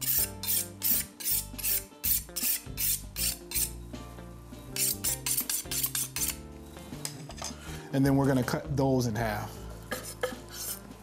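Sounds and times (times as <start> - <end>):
knife scraping on honing steel: 0.0 - 3.8, 4.7 - 7.4.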